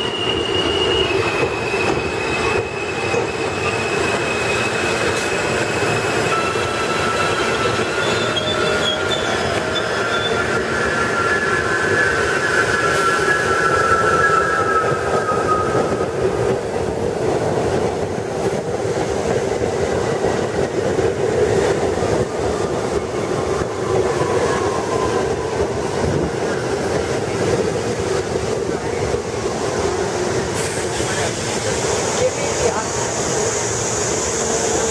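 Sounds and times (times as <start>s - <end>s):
wheel squeal: 0.0s - 16.2s
subway train rumbling past: 0.0s - 34.9s.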